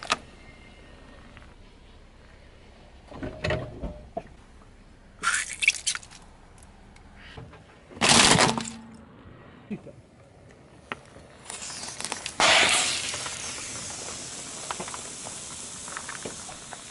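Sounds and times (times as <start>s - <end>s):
squishy toy bursting: 5.2s - 6.1s, 11.4s - 16.9s
car tyre crushing soft toys: 5.2s - 6.3s, 7.9s - 8.9s, 11.3s - 16.9s.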